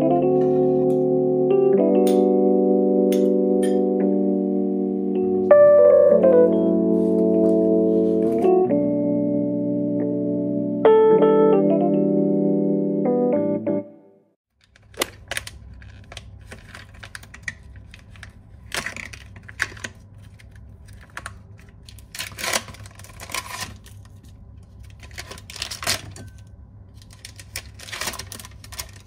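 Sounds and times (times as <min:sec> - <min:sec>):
plastic film crinkling: 0:14.6 - 0:29.0.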